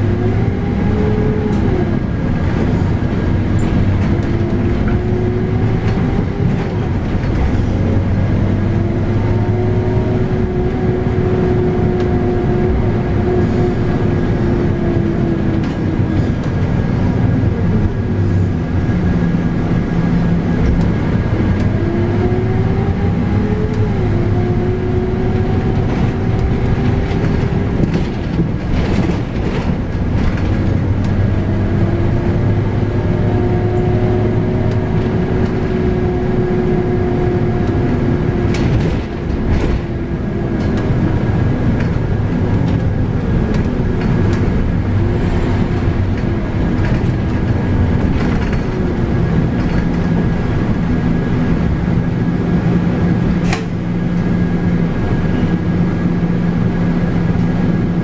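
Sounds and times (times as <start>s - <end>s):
bus engine with rising whine: 0.0s - 58.0s
body rattles and clicks: 25.6s - 31.6s, 37.7s - 51.7s.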